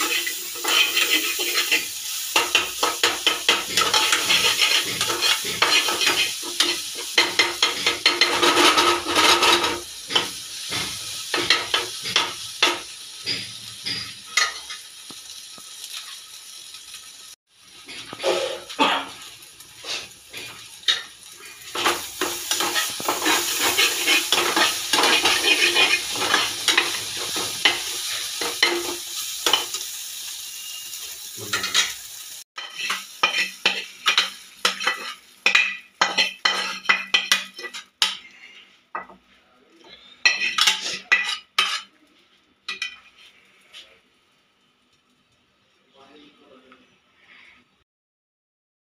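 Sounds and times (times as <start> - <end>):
metal spatula scraping a pan: 0.0 - 14.8, 17.8 - 32.0, 32.6 - 39.2, 40.2 - 41.9
eggs sizzling in a pan: 0.0 - 46.2.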